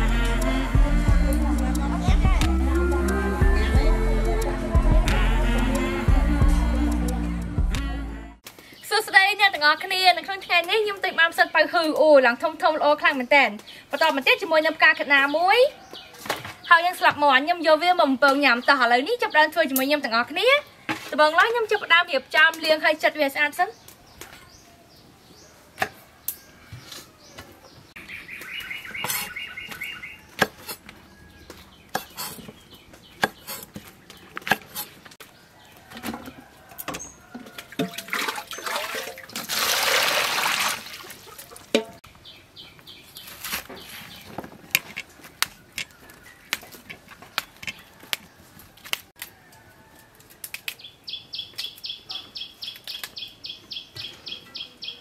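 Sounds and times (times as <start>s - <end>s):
birds chirping in trills: 23.6s - 34.4s, 50.8s - 55.0s.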